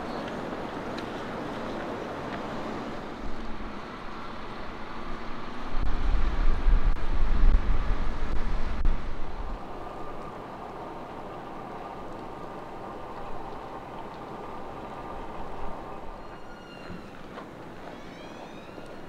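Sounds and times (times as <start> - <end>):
wind buffeting microphone: 0.0 - 18.0
street ambience hiss: 0.0 - 19.0
low rumble: 3.2 - 10.3.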